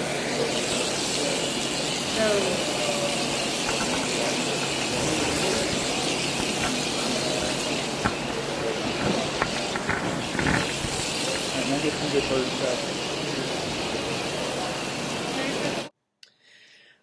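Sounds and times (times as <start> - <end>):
water rushing hiss: 0.0 - 15.9
sharp knocks and clatters: 3.6 - 11.7.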